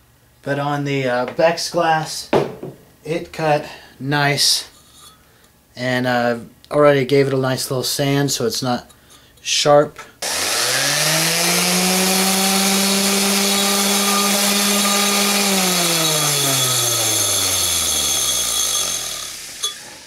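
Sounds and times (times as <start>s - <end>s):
sander motor humming: 10.2s - 20.0s
glass sanding hiss: 16.4s - 20.0s.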